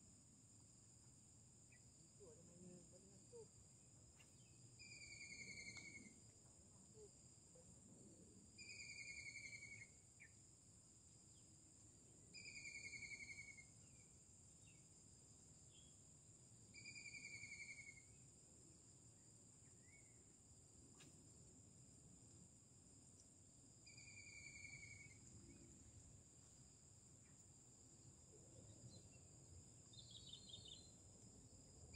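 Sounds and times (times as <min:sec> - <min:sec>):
high-pitched insect drone: 0:04.8 - 0:06.2, 0:12.4 - 0:13.7, 0:16.8 - 0:18.1, 0:23.8 - 0:25.2.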